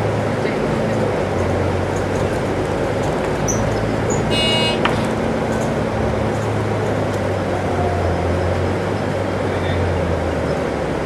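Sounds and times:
bus diesel engine drone: 0:00.0 - 0:11.0
high-pitched buzzer tone: 0:04.3 - 0:04.8.

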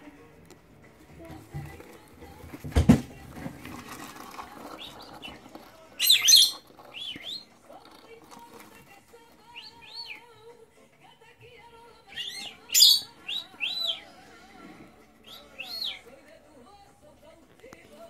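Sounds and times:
lovebirds chirping: 0:04.4 - 0:10.6, 0:11.6 - 0:16.9.

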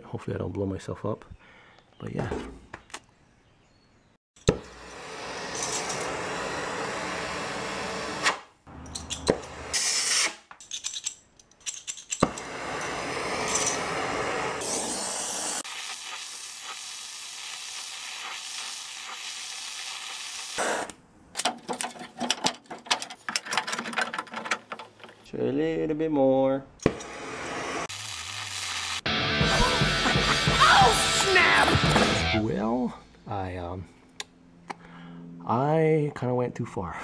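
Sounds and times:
gas torch flame hissing: 0:04.6 - 0:08.4, 0:12.2 - 0:21.0, 0:26.8 - 0:29.1.

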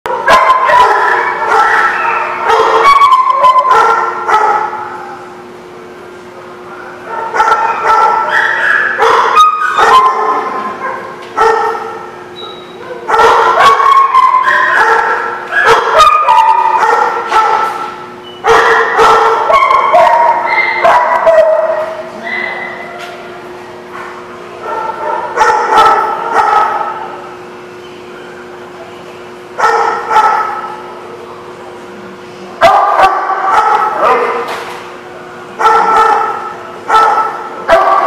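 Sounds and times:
dogs yipping whining and barking: 0:00.3 - 0:04.5, 0:07.3 - 0:11.7, 0:12.3 - 0:23.0.

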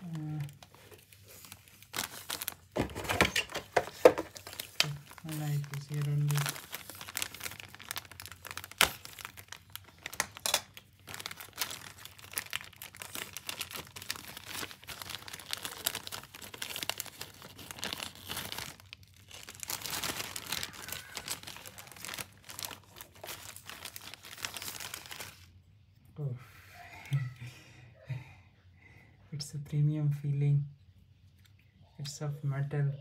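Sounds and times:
plastic packaging crinkling: 0:00.0 - 0:25.6.

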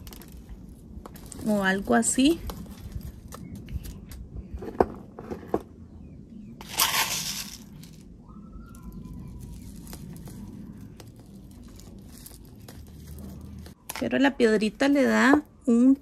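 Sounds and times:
rush of gravel: 0:06.6 - 0:08.0.

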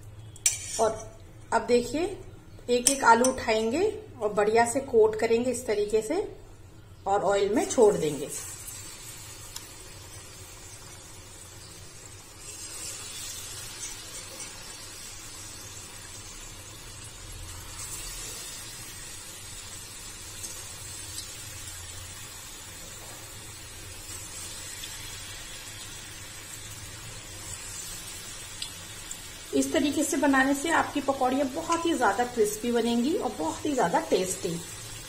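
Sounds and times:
potato slices deep-frying in oil: 0:00.0 - 0:35.0.

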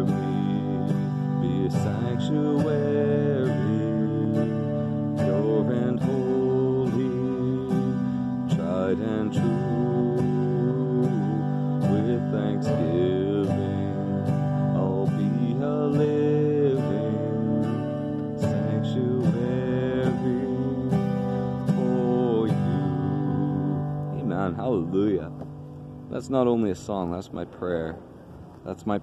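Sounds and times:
man singing: 0:00.0 - 0:25.2
acoustic guitar strumming: 0:00.0 - 0:27.0.

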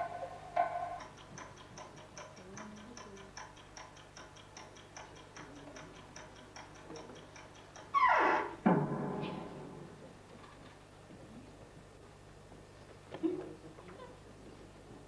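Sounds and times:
rapid even ticking: 0:00.0 - 0:08.6.

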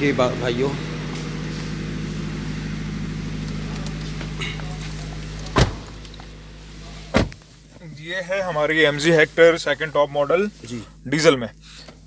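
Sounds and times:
low tonal hum: 0:00.0 - 0:11.8
car door being shut: 0:05.4 - 0:06.0, 0:07.1 - 0:07.5.

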